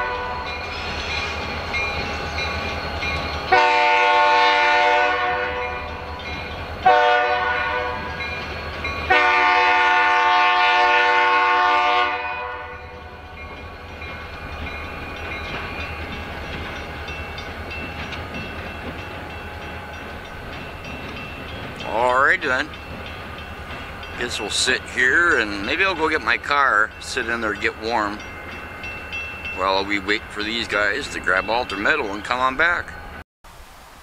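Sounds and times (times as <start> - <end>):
locomotive air horn blasts: 0.0 - 0.6, 3.5 - 5.8, 6.8 - 8.1, 9.1 - 13.0.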